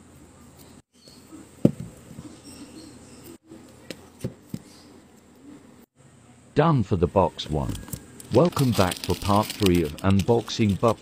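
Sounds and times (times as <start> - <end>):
album cases being handled: 7.7 - 11.0.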